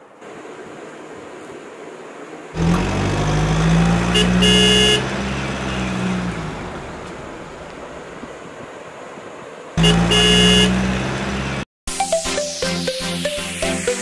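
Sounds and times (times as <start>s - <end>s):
car horn toot: 2.6s - 6.6s, 9.8s - 11.6s
car engine running: 2.6s - 8.1s, 9.8s - 11.7s.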